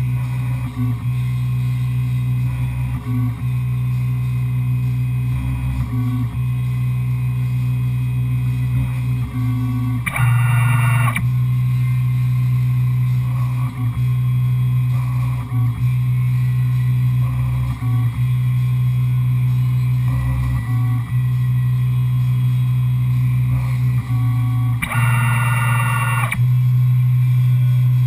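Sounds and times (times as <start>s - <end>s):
milling machine motor hum: 9.5s - 11.2s, 23.6s - 26.4s.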